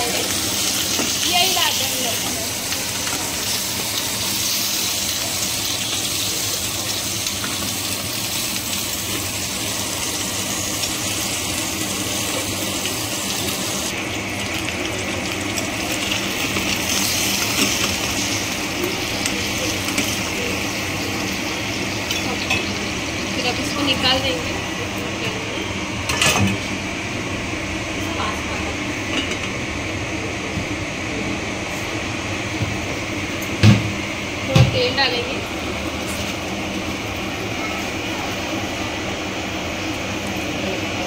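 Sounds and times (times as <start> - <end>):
vegetables sizzling in hot oil: 0.0 - 29.6, 31.5 - 41.0.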